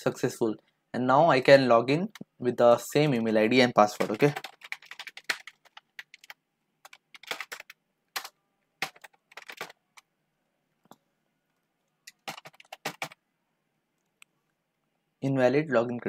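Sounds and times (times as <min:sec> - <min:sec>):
typing on a keyboard: 0:03.1 - 0:09.8, 0:12.1 - 0:13.2.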